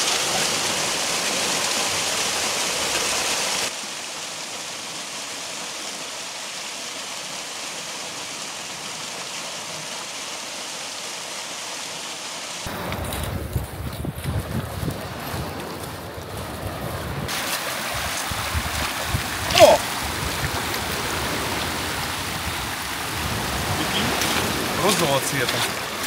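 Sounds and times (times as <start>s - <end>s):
waterfall rushing: 0.0s - 12.8s, 17.3s - 26.0s.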